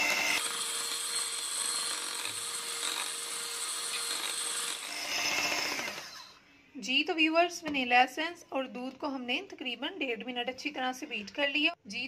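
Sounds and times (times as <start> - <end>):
electric hand mixer whisking batter: 0.0 - 6.2.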